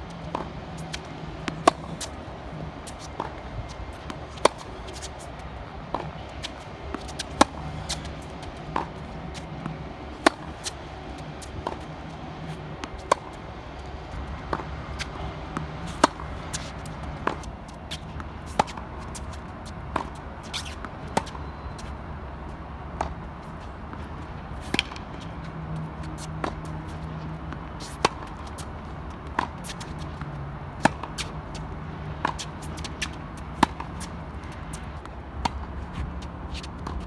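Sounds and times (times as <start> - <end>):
tennis ball struck with racket: 0.2 - 21.4, 24.6 - 25.4, 29.2 - 37.0.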